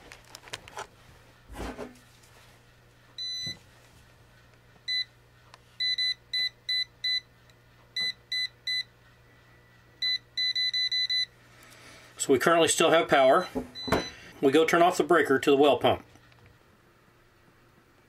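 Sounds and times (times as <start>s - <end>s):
voltage tester beeping: 3.2s - 3.6s, 5.8s - 7.3s, 8.0s - 8.9s, 10.0s - 11.3s, 13.4s - 14.2s.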